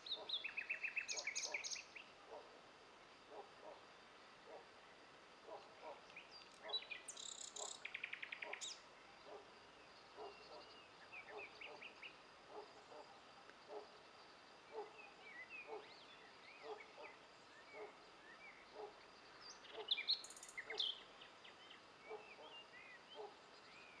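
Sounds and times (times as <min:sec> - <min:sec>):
bird chirps: 0:00.0 - 0:02.1, 0:05.5 - 0:09.4, 0:14.7 - 0:24.0
high trilling birdsong: 0:00.0 - 0:02.1, 0:05.5 - 0:08.8.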